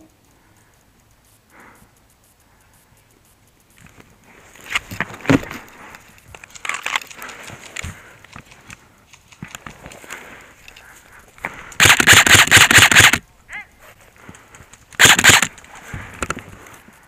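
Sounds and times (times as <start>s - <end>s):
airsoft rifle bursts: 11.5s - 13.6s, 14.8s - 16.3s.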